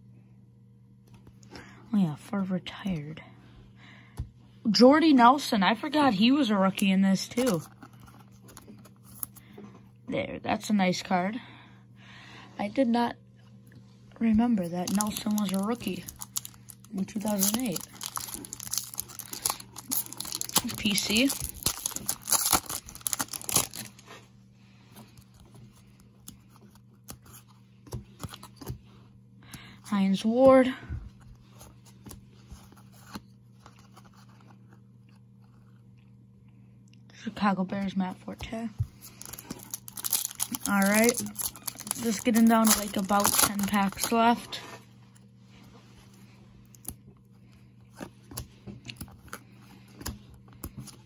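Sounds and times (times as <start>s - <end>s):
steady low hum: 0.0s - 51.0s
cards rustling and ticking: 6.7s - 9.6s, 14.3s - 24.2s, 24.8s - 29.8s, 31.3s - 35.8s, 38.3s - 44.6s, 46.0s - 51.0s
foil wrapper crinkling: 14.6s - 24.1s, 39.0s - 44.6s
trading cards flipped through: 14.7s - 24.1s, 38.8s - 44.2s.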